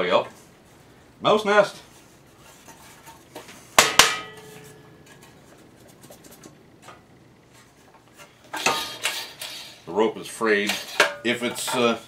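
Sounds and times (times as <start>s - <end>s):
sheet metal clanking: 2.6s - 5.5s, 8.5s - 9.8s.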